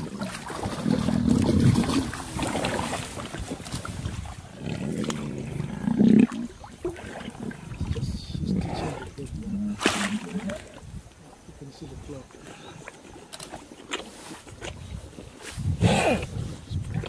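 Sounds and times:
lions growling: 0.0 - 10.7, 15.6 - 17.0
water sloshing: 0.0 - 17.0.

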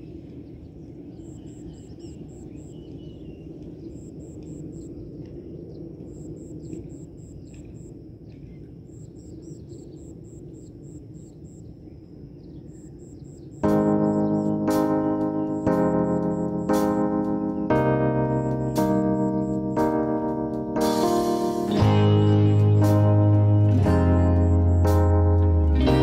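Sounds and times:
birds chirping: 0.0 - 19.8
insects calling: 0.0 - 26.0
rapid high chirp: 12.7 - 19.9, 21.0 - 26.0
piano music: 13.6 - 26.0.

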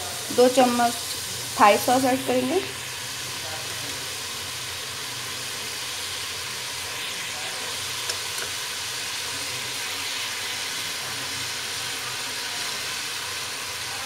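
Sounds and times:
meat sizzling in hot oil: 0.0 - 14.0.

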